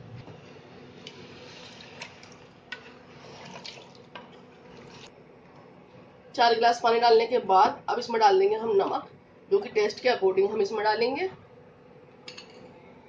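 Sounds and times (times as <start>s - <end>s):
liquid sloshing in a pot: 1.0s - 5.1s.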